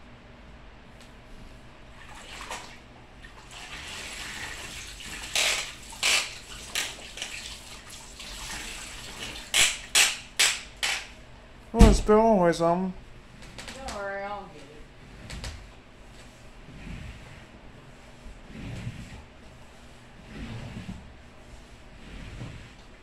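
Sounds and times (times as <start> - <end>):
mop sloshing in bucket of water: 1.9 - 9.8, 20.2 - 22.7.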